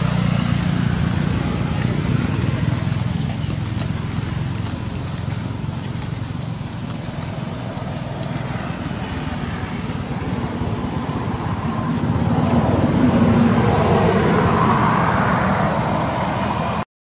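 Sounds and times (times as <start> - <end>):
passing vehicle engine and tyres: 0.0 - 16.8.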